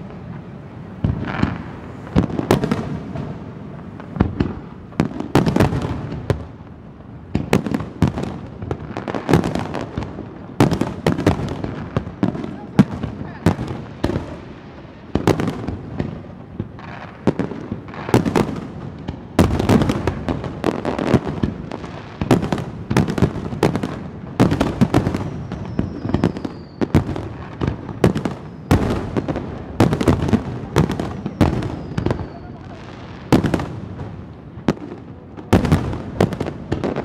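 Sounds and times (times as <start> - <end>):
firework crackling: 0.0 - 37.0
firework shells booming: 1.0 - 6.5, 15.1 - 37.0
falling firework whistle: 24.5 - 30.2, 30.8 - 33.6.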